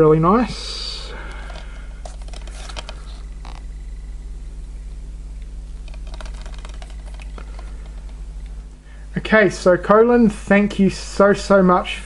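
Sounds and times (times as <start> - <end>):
steady low hum: 0.0 - 12.0
plastic case crackling and clicking: 1.3 - 3.6.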